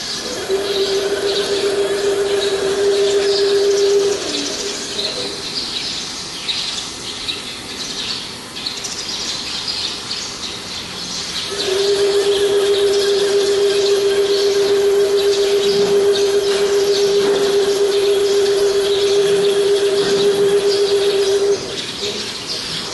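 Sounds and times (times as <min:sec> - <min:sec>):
motor humming: 0:00.0 - 0:05.7, 0:11.5 - 0:22.9
high twittering chirps: 0:00.0 - 0:22.9.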